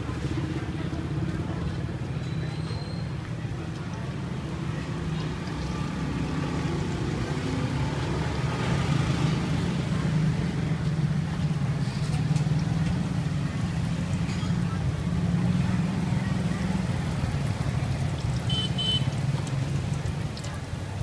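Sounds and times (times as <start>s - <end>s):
traffic engines rumbling: 0.0s - 21.0s
dough sizzling in oil: 16.8s - 20.8s.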